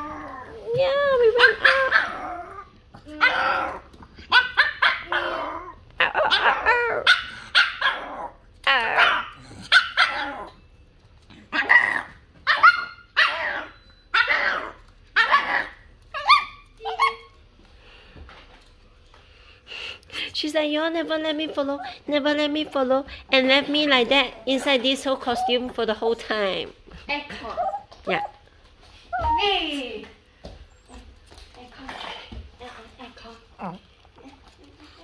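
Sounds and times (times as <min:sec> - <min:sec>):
dog whining and yowling barks: 0:01.4 - 0:10.6, 0:11.5 - 0:17.4.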